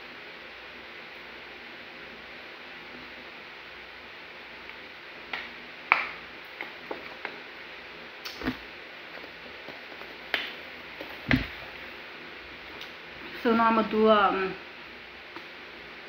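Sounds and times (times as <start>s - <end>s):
dull knocks: 11.2s - 11.6s.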